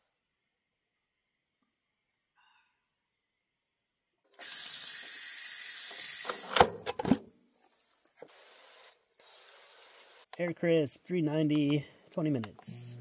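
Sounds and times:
steam hissing from valve: 0:04.4 - 0:06.5.

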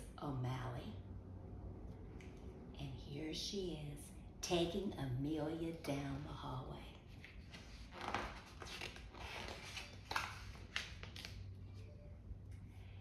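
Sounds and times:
book page turning: 0:07.1 - 0:11.9.

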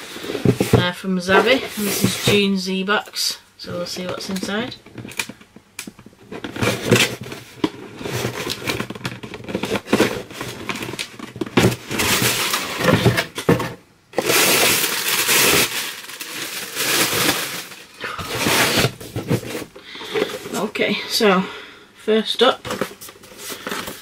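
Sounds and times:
cardboard and packing material rustling: 0:00.0 - 0:02.5, 0:06.0 - 0:20.8, 0:22.6 - 0:24.0
dense crinkling: 0:00.0 - 0:02.5, 0:03.9 - 0:20.9, 0:22.6 - 0:24.0.

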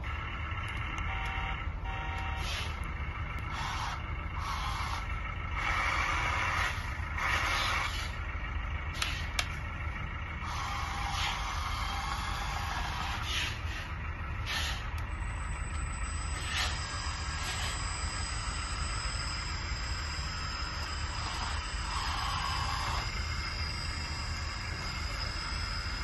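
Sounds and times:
low motor hum: 0:00.0 - 0:26.0
whirring and hissing: 0:00.0 - 0:26.0.

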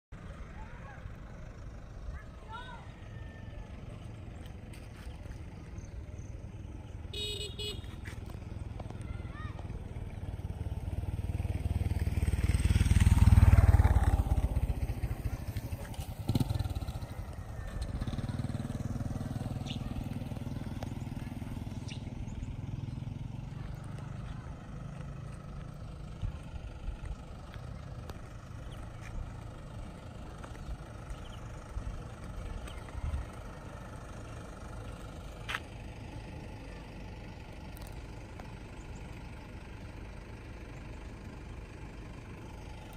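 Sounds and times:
low engine hum: 0:00.1 - 0:42.9
outdoor ambience: 0:00.1 - 0:42.9
vehicle passing by: 0:07.2 - 0:38.0.

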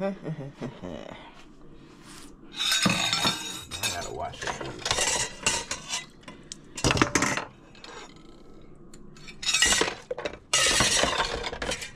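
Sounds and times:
dishes and cutlery clattering: 0:02.6 - 0:06.2, 0:06.8 - 0:08.2, 0:09.2 - 0:11.9.

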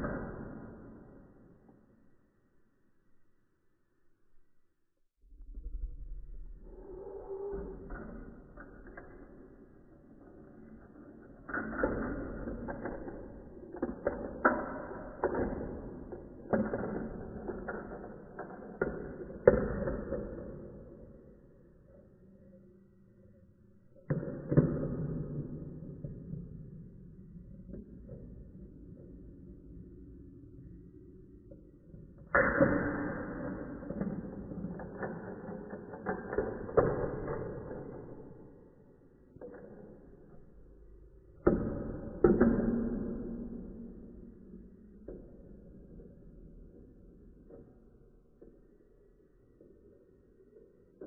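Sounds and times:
marbles rolling on plastic track: 0:08.6 - 0:20.5, 0:33.5 - 0:38.2.

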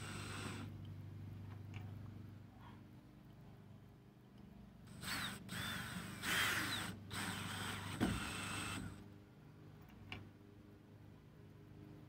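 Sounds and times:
cordless drill driving screw: 0:00.0 - 0:00.7, 0:04.9 - 0:09.0.

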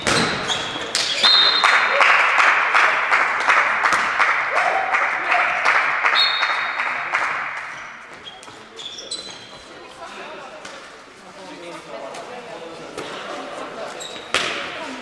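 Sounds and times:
shoes squeaking on court floor: 0:00.0 - 0:01.6, 0:07.6 - 0:10.1, 0:12.9 - 0:15.0
spectators clapping and cheering: 0:00.9 - 0:08.0.

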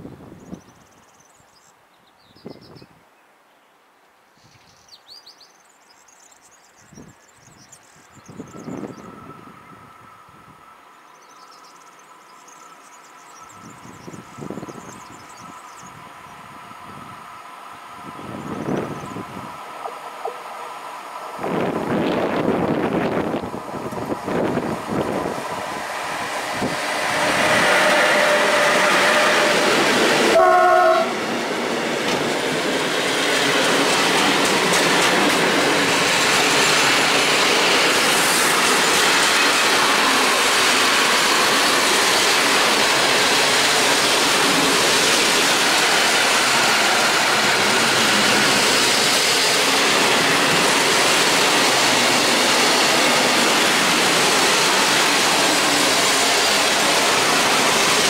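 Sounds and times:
locomotive passing: 0:10.6 - 0:58.0
train horn blast: 0:26.5 - 0:31.3.

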